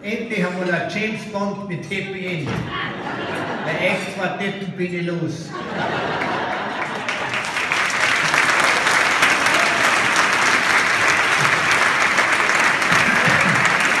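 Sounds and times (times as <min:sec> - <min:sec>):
audience clapping: 0:06.0 - 0:14.0.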